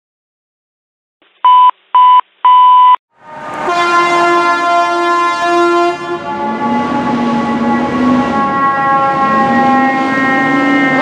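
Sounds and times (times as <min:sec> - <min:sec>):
loud beeps: 0:01.5 - 0:03.0
fire engine air horn: 0:03.2 - 0:11.0.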